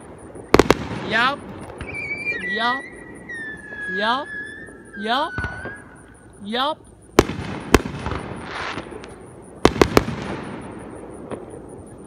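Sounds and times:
fireworks bangs: 0.0s - 6.2s, 7.1s - 12.0s
fireworks crackling hiss: 0.0s - 6.4s, 7.1s - 12.0s.

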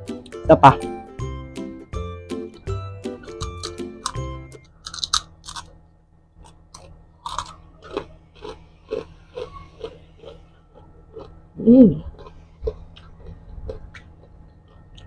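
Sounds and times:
crunching crispy chicken skin: 4.8s - 5.7s, 6.5s - 10.4s
chewing: 6.4s - 11.4s, 12.0s - 15.0s.

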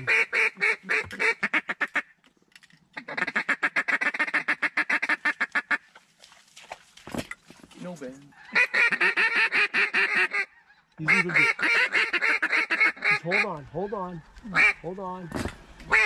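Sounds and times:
duck call quacks: 0.0s - 2.1s, 3.0s - 5.8s, 8.4s - 13.6s, 14.5s - 14.8s.

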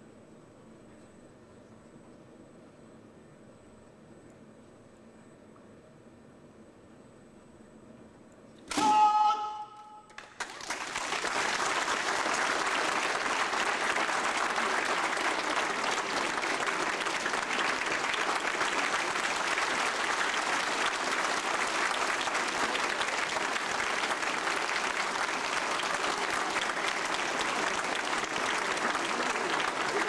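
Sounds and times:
audience applauding: 10.1s - 30.0s.

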